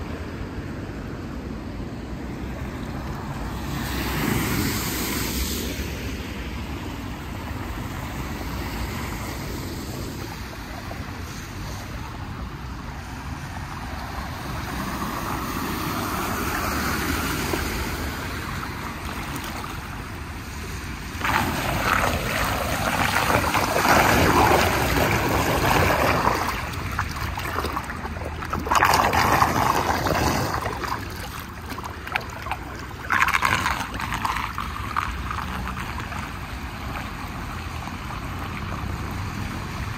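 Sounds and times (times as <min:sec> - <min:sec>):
water gurgling down a drain: 0:21.0 - 0:39.2.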